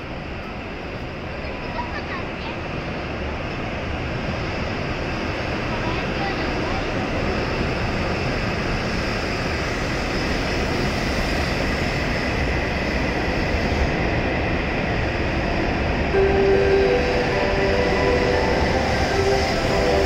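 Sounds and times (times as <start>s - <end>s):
train running rumble: 0.0s - 20.0s
steady tone: 16.1s - 20.0s.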